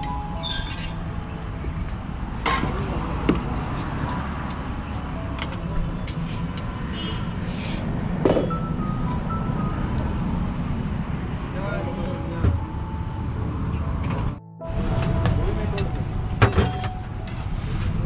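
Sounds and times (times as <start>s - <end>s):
street traffic rumble: 0.0s - 18.0s.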